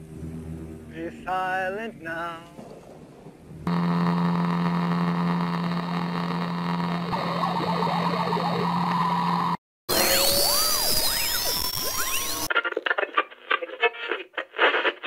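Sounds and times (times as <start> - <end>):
low droning hum: 0.0 - 9.6.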